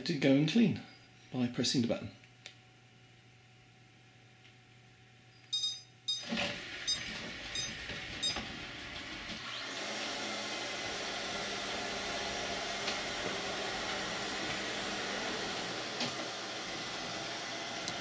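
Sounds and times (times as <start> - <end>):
short electronic beeps: 5.3 - 8.4
robotic vacuum whirring: 6.2 - 18.0.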